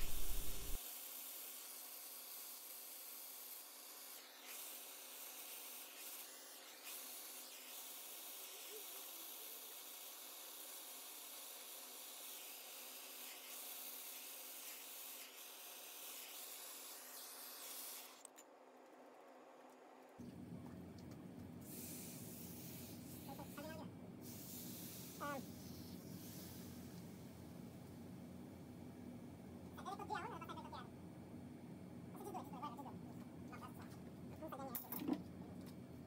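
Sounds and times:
blowtorch hissing: 0.0s - 0.8s, 3.5s - 18.2s, 21.6s - 26.9s.

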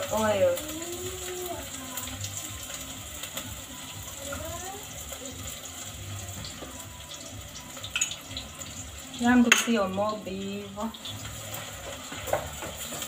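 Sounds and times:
onions sizzling in hot oil: 0.0s - 13.0s
wooden spoon scraping a pot: 11.1s - 13.0s.

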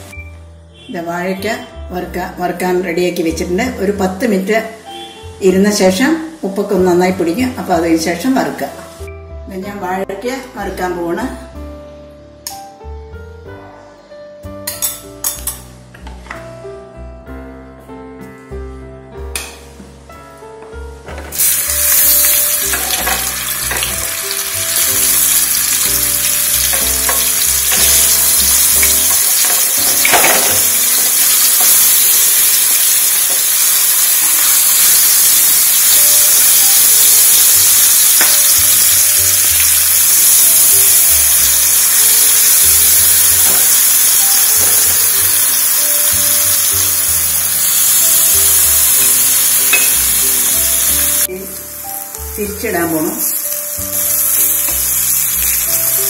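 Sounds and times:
food sizzling in hot oil: 21.3s - 56.0s.

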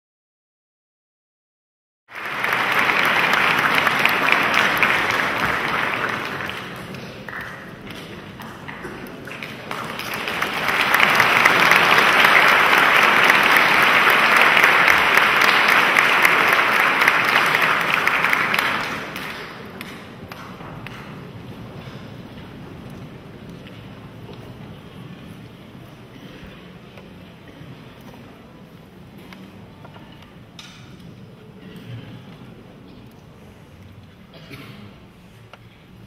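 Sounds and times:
audience applauding: 2.1s - 21.3s.

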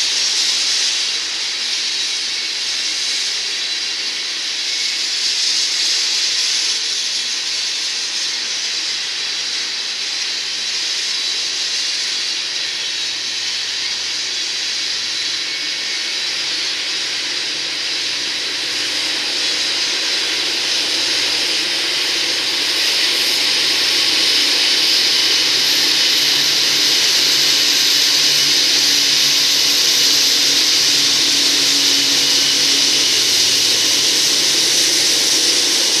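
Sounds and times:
low diesel locomotive drone: 0.0s - 36.0s
steel wheels hissing on rail: 0.0s - 36.0s.

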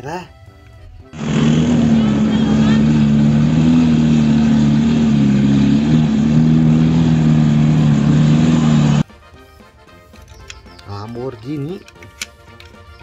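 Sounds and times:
car engine running: 1.1s - 9.0s
faint music: 8.3s - 13.0s.

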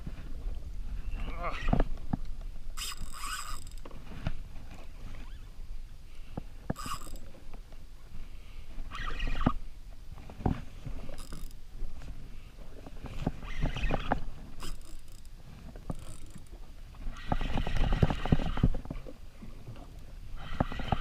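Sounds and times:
water and wind: 0.0s - 21.0s
fishing reel whirring and clicking: 2.8s - 3.9s, 6.7s - 7.3s, 8.9s - 9.6s, 11.1s - 11.6s, 13.4s - 15.3s, 15.9s - 18.7s, 20.4s - 21.0s.

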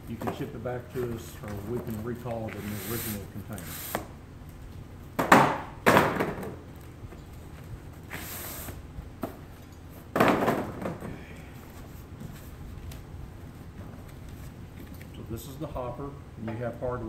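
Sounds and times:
light cardboard rustle: 0.1s - 4.1s.

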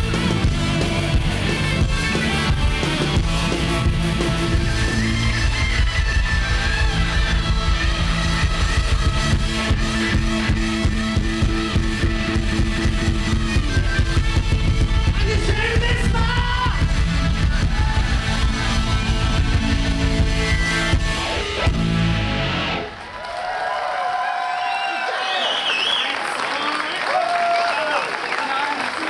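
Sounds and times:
steady drum beat: 0.0s - 22.8s
electric guitar: 0.0s - 23.4s.

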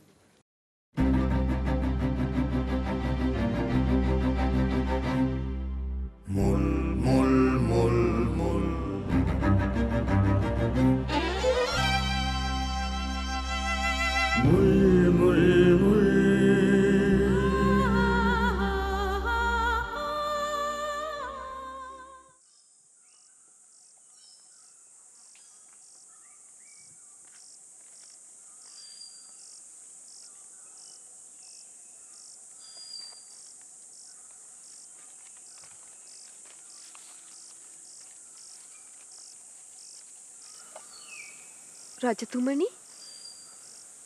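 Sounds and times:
person singing a melody: 6.3s - 10.2s, 14.1s - 22.3s
crickets chirping: 17.6s - 44.0s.

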